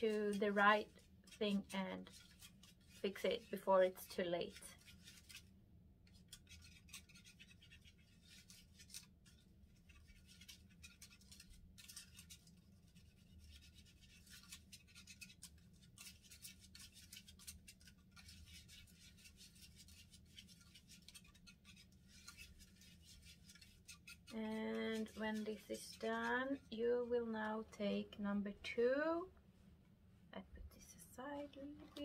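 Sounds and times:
plastic spoon scraping a tray: 14.6s - 26.8s.

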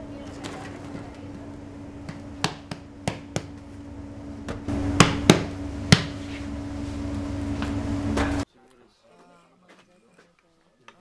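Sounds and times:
steady low hum: 0.0s - 8.4s
sharp knocks: 2.1s - 3.6s, 4.4s - 6.2s.

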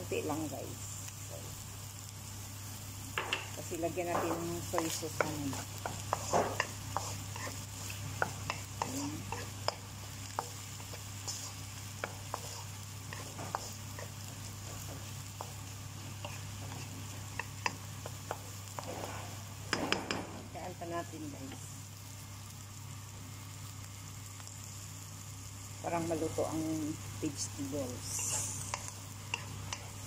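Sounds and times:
frying sizzle: 0.0s - 30.0s
spatula scraping in a wok: 3.6s - 19.6s, 27.6s - 30.0s.

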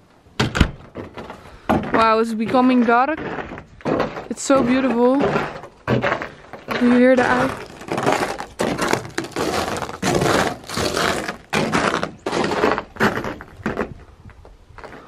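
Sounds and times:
footsteps crunching through snow: 1.9s - 14.0s.

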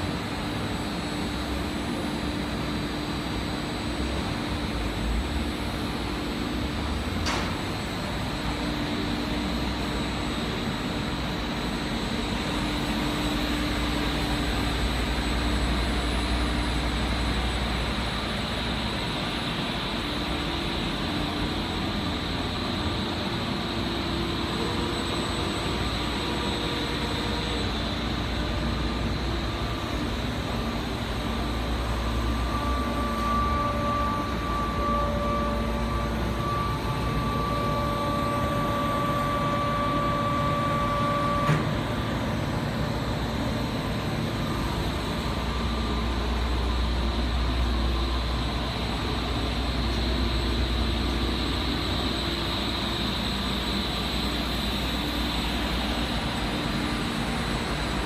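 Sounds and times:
fan and airflow noise: 0.0s - 58.0s
thin whine: 21.2s - 58.0s.

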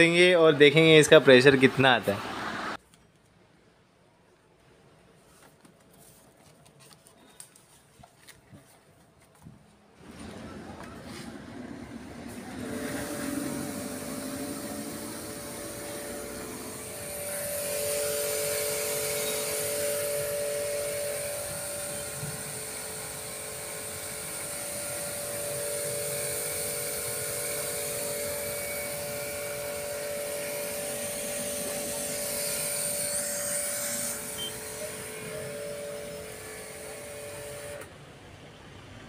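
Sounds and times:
pressure washer motor humming: 10.0s - 37.9s
high-pressure water jet hissing: 12.3s - 37.8s.

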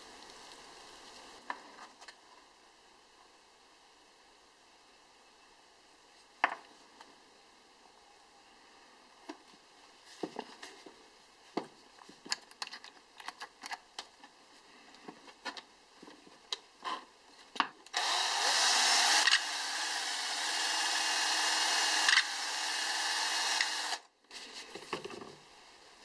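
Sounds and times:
cordless drill running: 17.9s - 24.0s.

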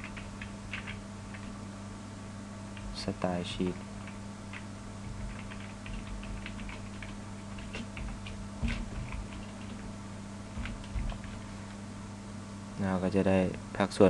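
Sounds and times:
keyboard typing: 0.0s - 1.5s, 4.0s - 9.9s, 10.5s - 11.5s
low electrical hum: 0.0s - 14.0s.

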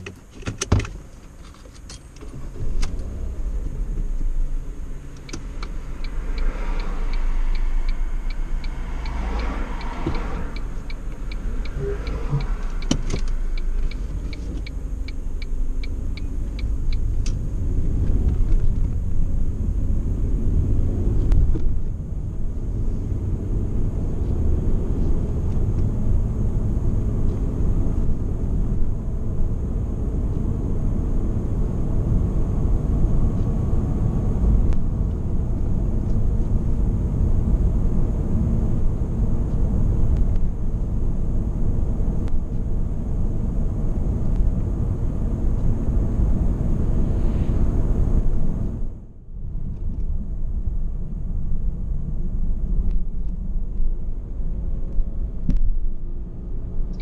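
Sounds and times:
car engine and road rumble: 0.0s - 57.0s
regular ticking: 2.9s - 17.7s.

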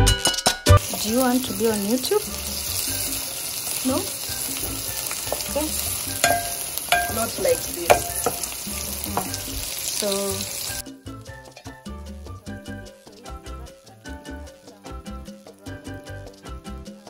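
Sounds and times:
onions sizzling in a pot: 0.7s - 10.8s
wooden spoon knocking a ringing pot: 5.2s - 9.7s.

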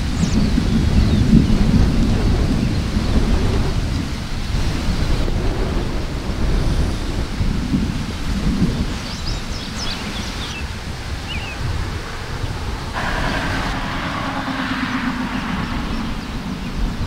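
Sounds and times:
distant thunder rumbling: 0.0s - 17.0s.

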